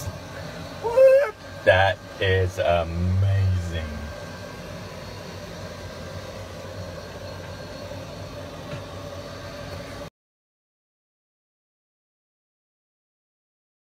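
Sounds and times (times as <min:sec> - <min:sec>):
constant hiss: 0:00.0 - 0:10.1
low drone: 0:00.0 - 0:10.1
machine hum: 0:00.0 - 0:10.1.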